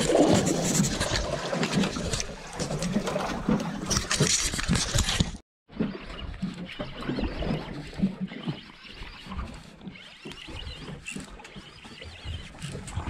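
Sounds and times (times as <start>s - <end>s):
fishing reel rustling and clicking: 0.0s - 5.4s.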